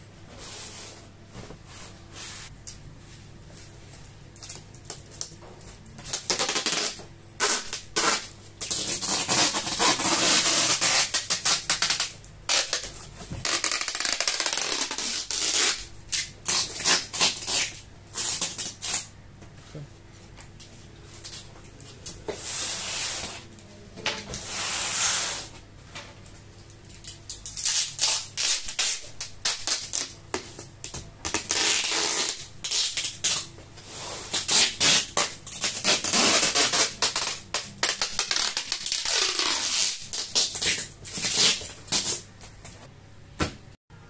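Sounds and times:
packing tape ripping off roll: 0:06.1 - 0:19.1, 0:27.0 - 0:30.2, 0:31.2 - 0:33.5, 0:34.3 - 0:42.2.

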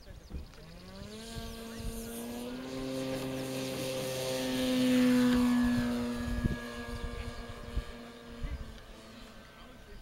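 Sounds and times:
model plane propeller hum: 0:00.0 - 0:10.0.

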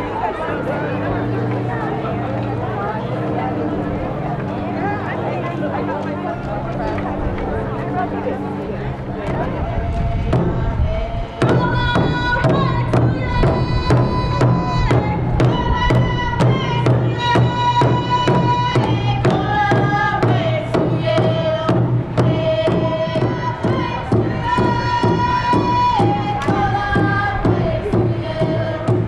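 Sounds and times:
large drum steady beat: 0:09.0 - 0:29.0.

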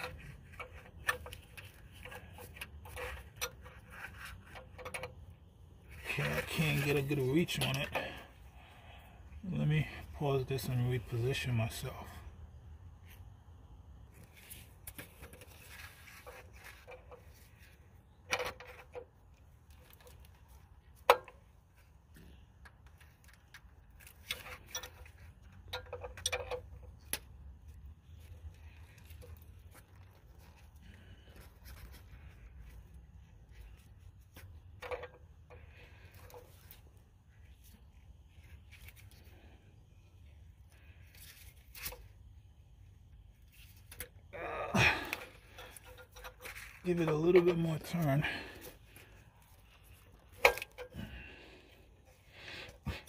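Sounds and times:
wrench clicking and scraping on fitting: 0:00.0 - 0:08.4, 0:45.1 - 0:51.2.

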